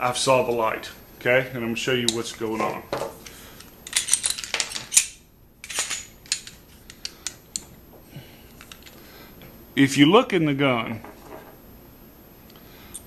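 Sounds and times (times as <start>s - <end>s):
pistol parts clicking and rattling: 3.6s - 7.8s, 8.6s - 9.0s.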